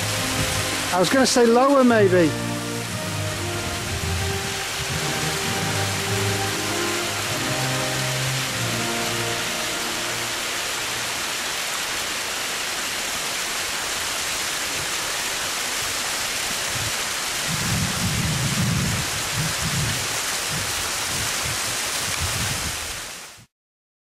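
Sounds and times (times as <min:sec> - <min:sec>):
mountain stream running: 0:00.0 - 0:23.4
wind hissing: 0:00.0 - 0:23.5
wind buffeting microphone: 0:03.4 - 0:05.6, 0:16.7 - 0:23.0.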